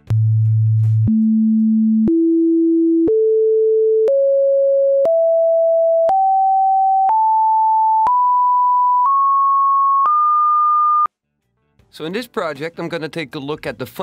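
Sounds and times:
sine wave test tones: 1.1 - 11.1.

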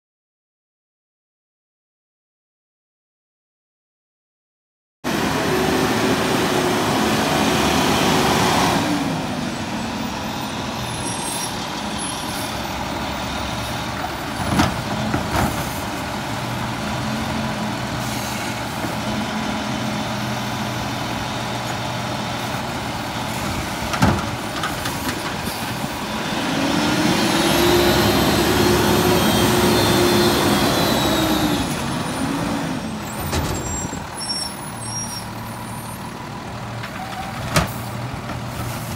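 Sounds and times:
garbage truck engine revving: 5.1 - 34.2.

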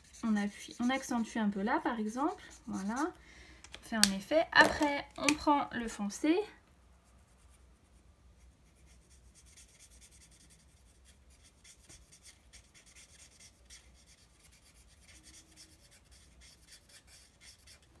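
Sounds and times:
marker scratching on paper: 0.0 - 3.2, 8.4 - 17.9.

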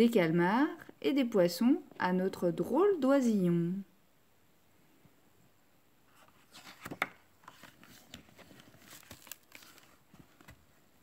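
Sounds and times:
book page turning: 6.1 - 11.0
paper rustling and crinkling: 6.2 - 11.0.

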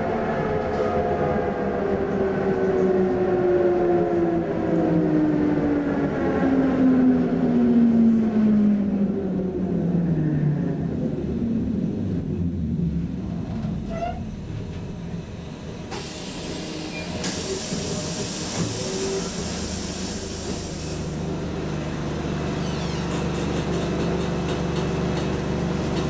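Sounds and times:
tram running hum: 0.0 - 26.0
compressed air hiss: 15.9 - 21.2.

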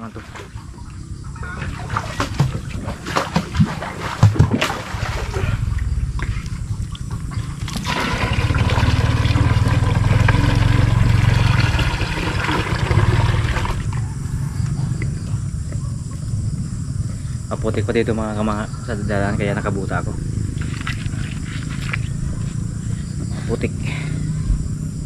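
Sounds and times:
water pouring into watering can: 7.6 - 14.0.

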